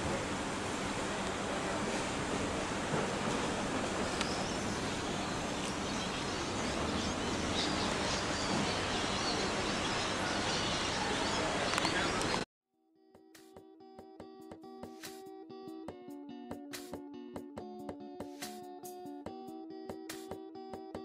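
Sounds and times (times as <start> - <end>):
faint clicks: 11.7 - 12.4.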